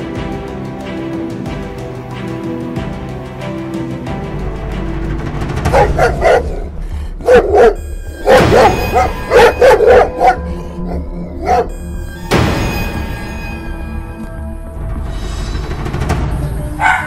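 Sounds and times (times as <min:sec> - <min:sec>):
background music: 0:00.0 - 0:17.0
dog barking: 0:05.7 - 0:11.7, 0:16.8 - 0:17.0.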